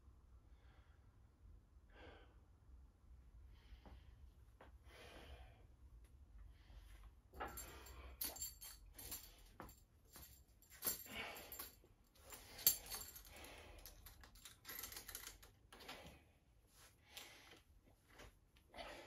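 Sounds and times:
light clicks and rattles: 7.4 - 16.1
heavy breathing: 10.8 - 14.2.

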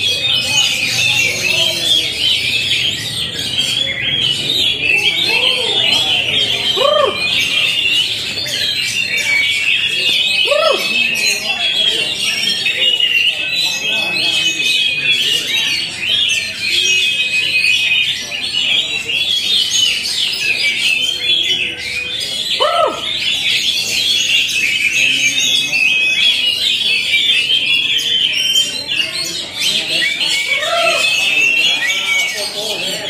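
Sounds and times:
birds singing whistled phrases: 0.0 - 33.0
low bird call: 0.1 - 11.8.

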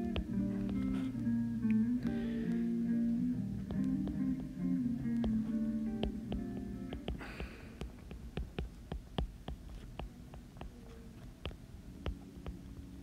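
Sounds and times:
stylus tapping on glass screen: 0.0 - 1.8, 3.6 - 12.6
guitar music: 0.0 - 7.4.

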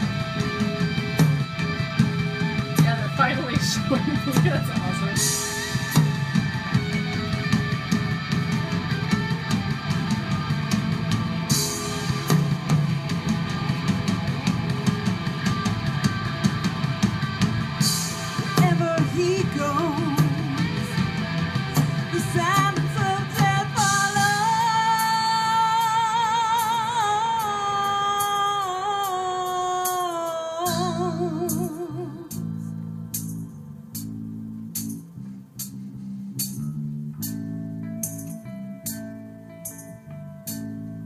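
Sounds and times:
drums: 0.0 - 41.0
electric guitar: 0.0 - 41.0
woman singing with vibrato: 18.4 - 21.0, 22.1 - 32.7.

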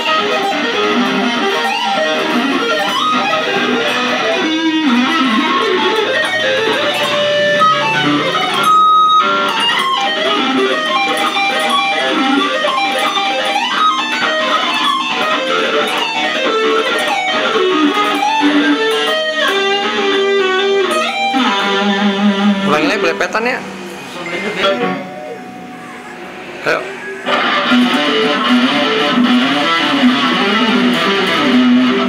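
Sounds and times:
electric guitar lead lines: 0.0 - 32.0.

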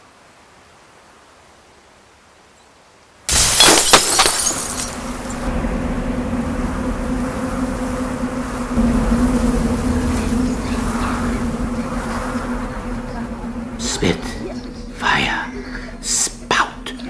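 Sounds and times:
faint hiss: 0.0 - 4.0
low buzzing drone: 3.4 - 17.0.

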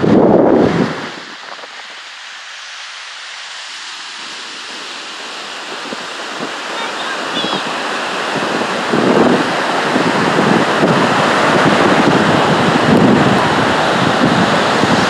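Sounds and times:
wind buffeting microphone: 0.0 - 2.2, 4.2 - 15.0
ocean surf on beach: 0.0 - 15.0.

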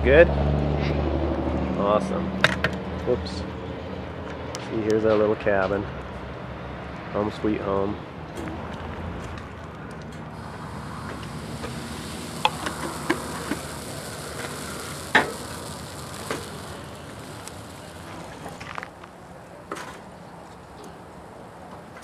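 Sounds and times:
batter sizzling on a griddle: 10.4 - 19.2.

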